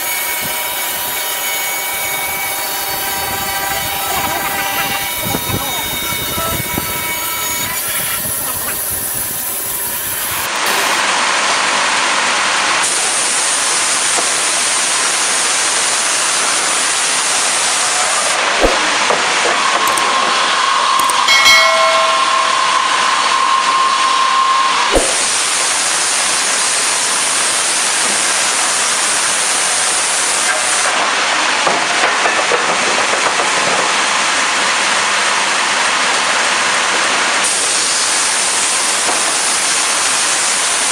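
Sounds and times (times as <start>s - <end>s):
band saw cutting through log: 0.0s - 11.3s, 15.4s - 21.3s, 24.8s - 30.6s
sharp knocks: 18.6s - 20.1s, 24.9s - 25.4s.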